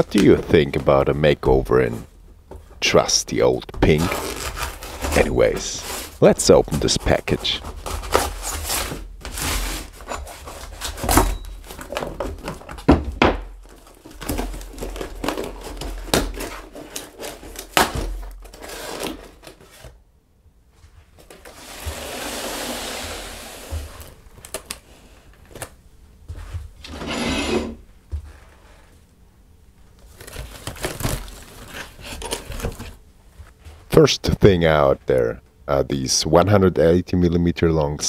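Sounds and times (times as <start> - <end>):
cardboard flaps rustling: 0.0 - 20.0, 29.9 - 33.9.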